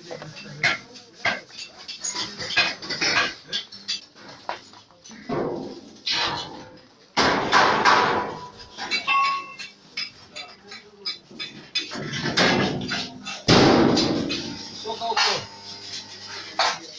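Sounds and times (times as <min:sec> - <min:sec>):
metal bangs and clanks: 0:05.2 - 0:16.9.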